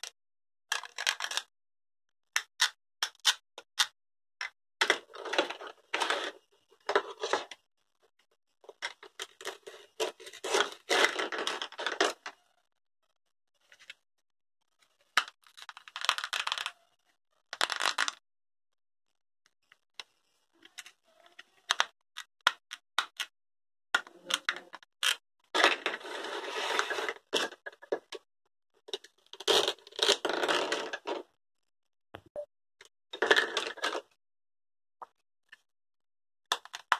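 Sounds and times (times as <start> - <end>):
plastic toys clicking together: 0.7 - 1.5, 15.2 - 16.8, 17.5 - 18.2, 20.7 - 23.3, 24.0 - 25.8, 36.5 - 36.9.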